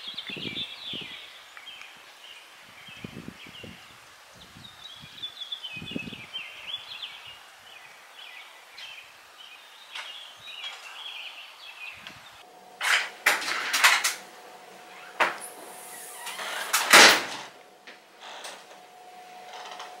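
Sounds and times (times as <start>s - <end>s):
small birds chirping: 0.0s - 12.8s
wooden door opening clatter: 14.9s - 20.0s.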